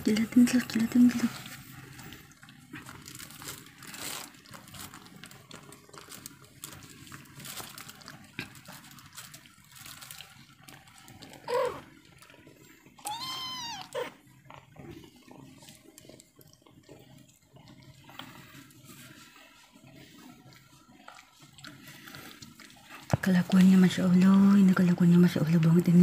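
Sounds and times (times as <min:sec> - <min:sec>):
cat licking and grooming: 0:00.0 - 0:26.0
cat meowing: 0:13.0 - 0:14.1.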